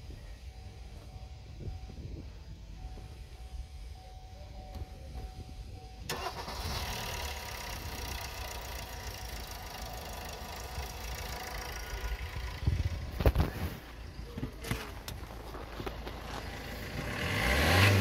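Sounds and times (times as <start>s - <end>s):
diesel engine idling: 0.0s - 18.0s
diesel engine starting: 6.0s - 14.5s, 15.3s - 18.0s.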